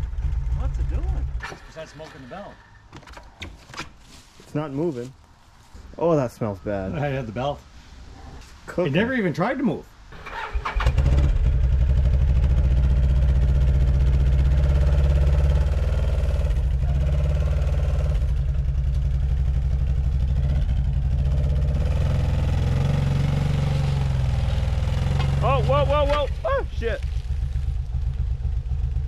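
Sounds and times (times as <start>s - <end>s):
atv engine revving: 0.0s - 2.8s, 10.2s - 29.0s.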